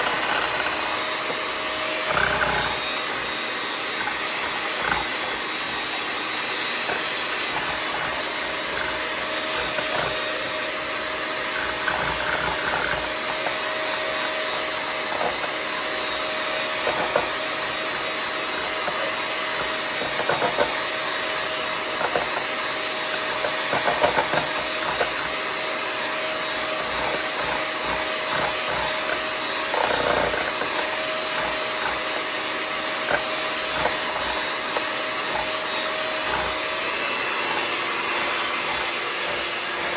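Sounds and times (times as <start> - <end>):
electric hand mixer running: 0.0 - 39.9
mixer beaters knocking bowl: 0.0 - 39.9.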